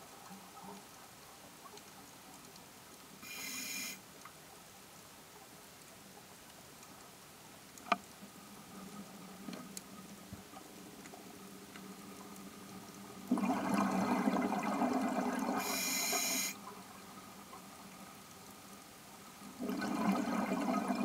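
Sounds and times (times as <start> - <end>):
underwater exhaled bubbles rushing: 13.3 - 15.7, 19.6 - 21.0.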